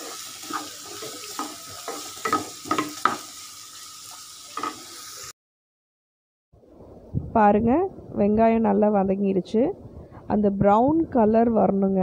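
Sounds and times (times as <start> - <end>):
spatula scraping a pan: 0.0 - 3.4
onions sizzling in hot oil: 0.0 - 5.3.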